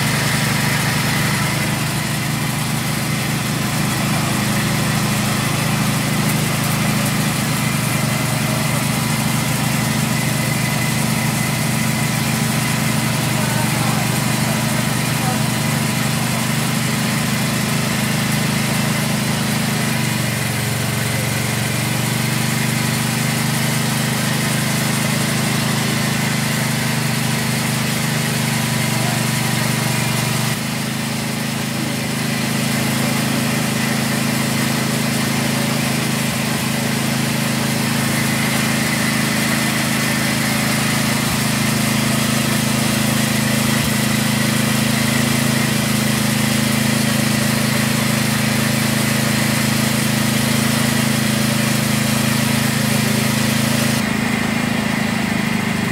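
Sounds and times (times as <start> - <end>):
grinding mill motor humming: 0.0 - 55.9.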